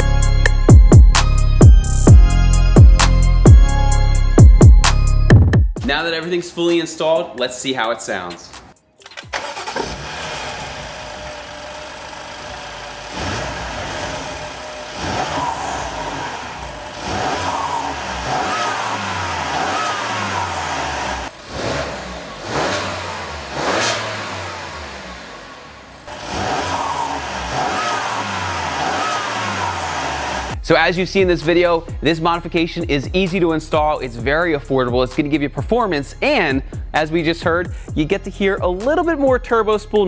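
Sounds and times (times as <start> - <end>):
car engine revving: 9.4 - 30.6.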